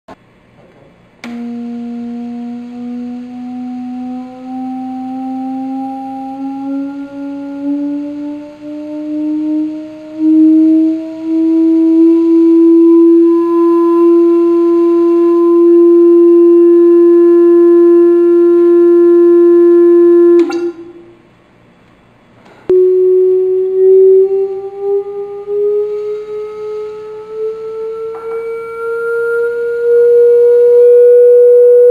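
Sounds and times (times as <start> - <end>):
click: 1.2 - 1.4
steady vibration tone rising in pitch: 1.3 - 21.3, 22.7 - 31.9.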